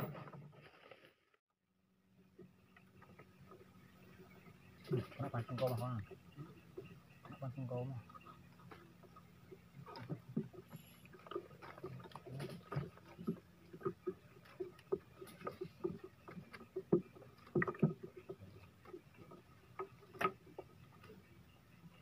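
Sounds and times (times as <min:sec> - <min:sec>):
water lapping against boat hull: 0:02.2 - 0:22.0
small knocks and clicks: 0:08.0 - 0:21.2.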